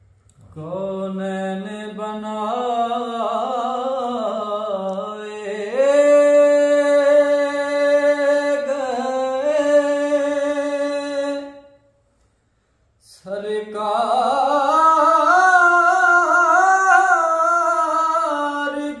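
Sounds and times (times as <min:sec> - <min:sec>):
man singing unaccompanied: 0:00.4 - 0:11.8, 0:13.0 - 0:19.0.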